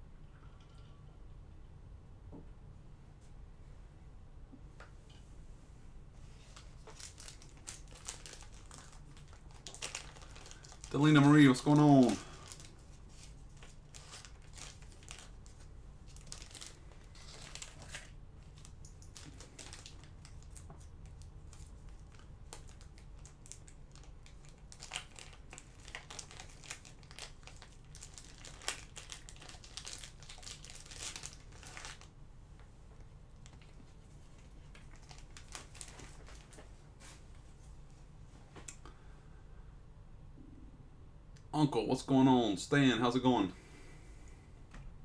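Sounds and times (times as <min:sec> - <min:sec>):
low steady hum: 0:00.0 - 0:45.0
crinkling and rustling: 0:06.2 - 0:38.8.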